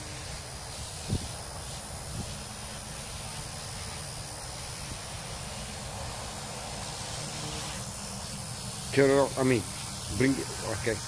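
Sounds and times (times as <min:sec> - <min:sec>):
rc helicopter motor and rotor: 0:00.0 - 0:11.0
wind noise on microphone: 0:00.7 - 0:02.5.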